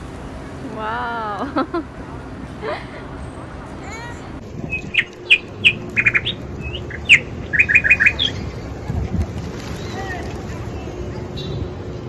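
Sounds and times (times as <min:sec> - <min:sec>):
small songbird chirping: 0:04.6 - 0:08.6.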